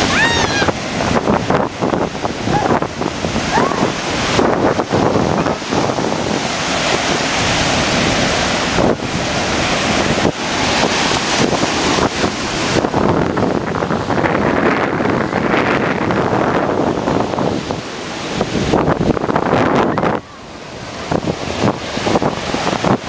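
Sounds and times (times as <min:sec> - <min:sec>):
ocean surf breaking: 0:00.0 - 0:23.0
wind buffeting microphone: 0:00.0 - 0:23.0.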